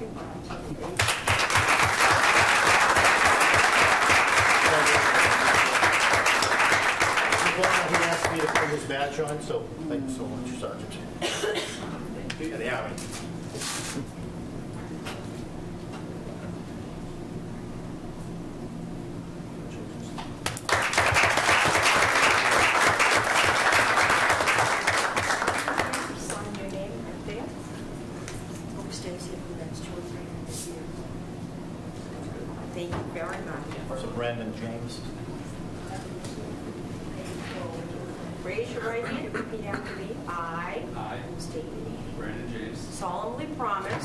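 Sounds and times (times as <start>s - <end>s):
crowd applauding: 1.0s - 8.8s, 20.5s - 26.4s.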